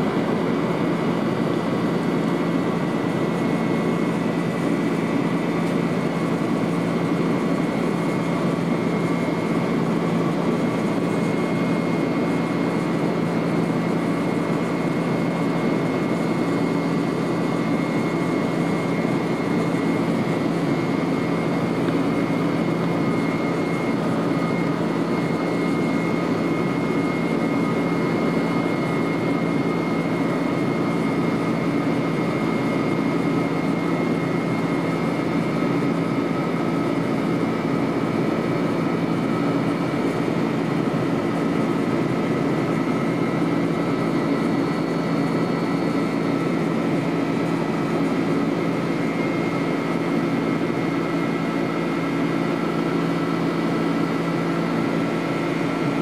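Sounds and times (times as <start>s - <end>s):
faint steady whines: 0.0s - 56.0s
jet cabin engine and airflow rush: 0.0s - 56.0s.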